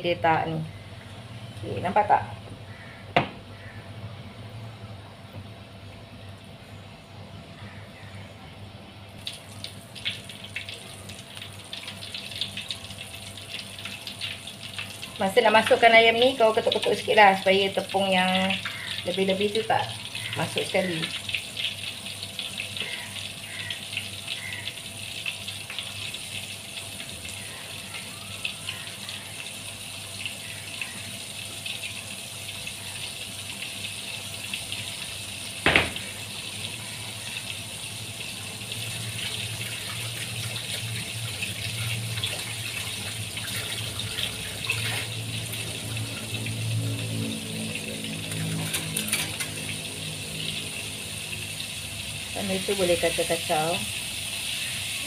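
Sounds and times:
oil sizzling and crackling: 0:09.2 - 0:55.0
sharp knock: 0:35.7 - 0:36.0
low hum: 0:39.0 - 0:53.3.

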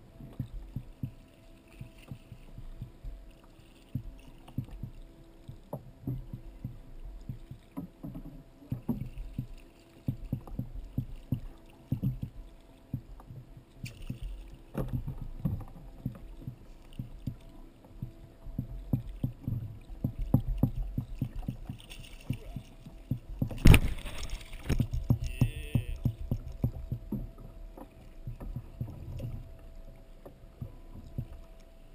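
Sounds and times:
water slapping against kayak hull: 0:00.2 - 0:31.9
loud thud and splash: 0:23.6 - 0:25.1.

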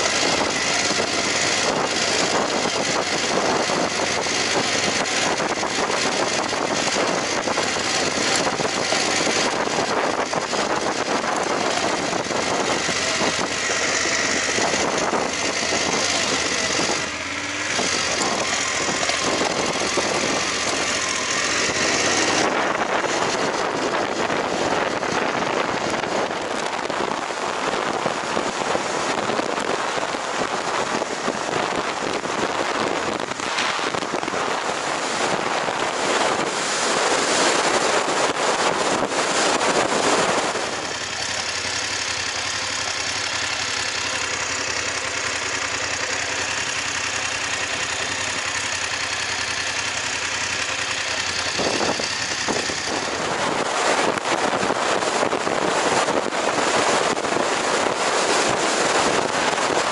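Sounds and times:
motorcycle engine running: 0:00.0 - 0:59.9
wind on microphone: 0:00.0 - 0:59.9.

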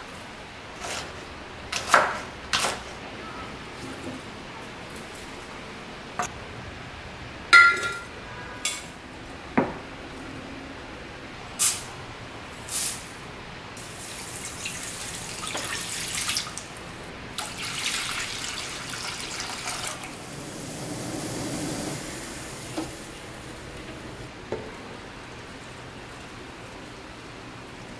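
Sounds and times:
kitchen things clinking: 0:07.6 - 0:08.9
liquid pouring into saucepan: 0:17.4 - 0:20.7.

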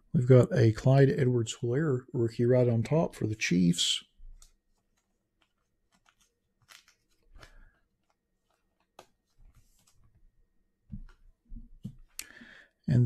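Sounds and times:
trading cards clicking and rustling: 0:04.4 - 0:10.2.

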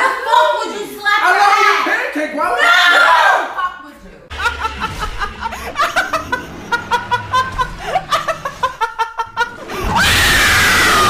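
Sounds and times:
person laughing: 0:04.3 - 0:10.0.

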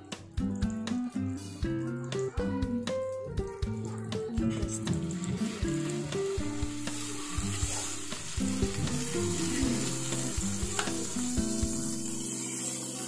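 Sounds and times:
meat sizzling on grill: 0:04.4 - 0:13.0.

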